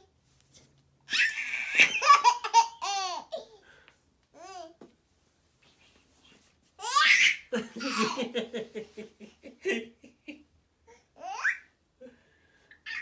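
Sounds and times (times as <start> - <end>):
baby squealing: 1.1 - 2.3
baby laughing: 1.1 - 3.5, 6.8 - 8.4, 11.2 - 11.7.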